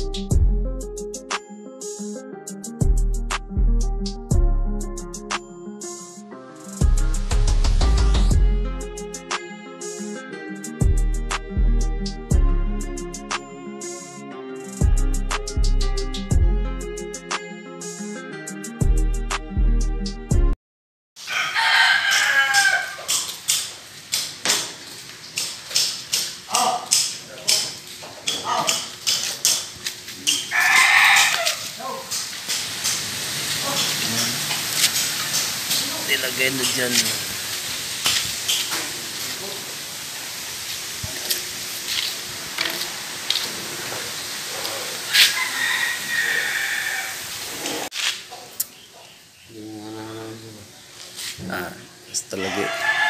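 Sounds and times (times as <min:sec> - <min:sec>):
rooster crowing: 0:21.2 - 0:23.3, 0:30.3 - 0:32.1, 0:44.8 - 0:47.5, 0:52.2 - 0:53.0
background hiss: 0:21.2 - 0:52.5.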